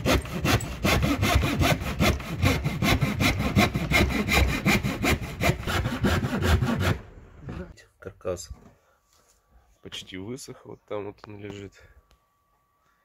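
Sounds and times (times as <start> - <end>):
hand saw cutting plywood: 0.0 - 7.7.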